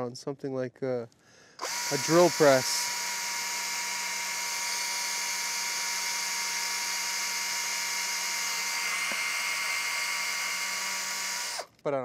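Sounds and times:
cordless drill boring plastic: 1.6 - 11.8.

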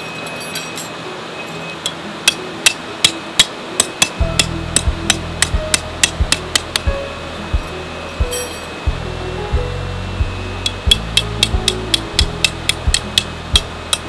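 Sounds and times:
low steady hum: 0.0 - 14.0
hammer striking metal stake: 1.8 - 7.0, 10.6 - 14.0.

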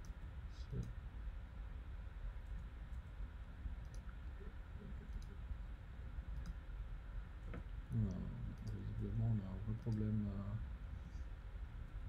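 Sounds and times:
faint low hum and hiss: 0.0 - 12.0
faint clicks: 3.8 - 4.2, 6.3 - 6.6, 9.7 - 10.1.

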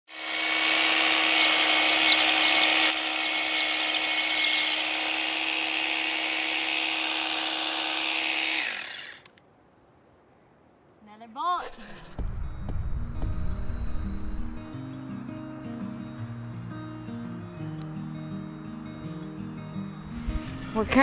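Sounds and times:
hammer drill boring into stone: 0.1 - 9.3.

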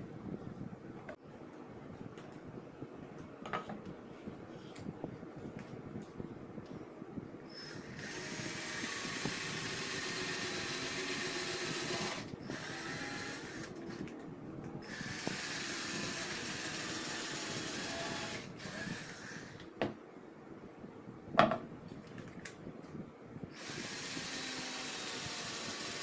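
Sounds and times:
cordless drill into plywood: 7.6 - 13.8, 14.8 - 19.7, 23.6 - 26.0.

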